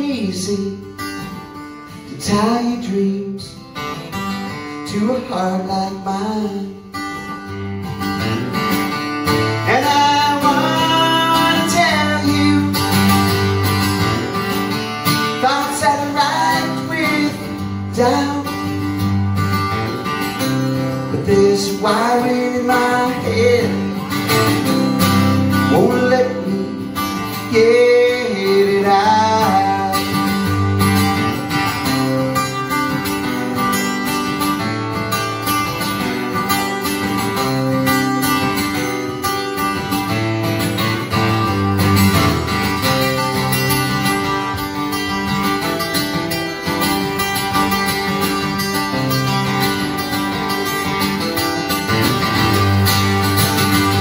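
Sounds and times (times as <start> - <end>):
man singing: 0.0 - 1.3, 1.9 - 4.0, 4.6 - 7.2, 9.5 - 13.5, 15.1 - 19.0, 20.8 - 31.2
strummed acoustic guitar: 0.0 - 54.0.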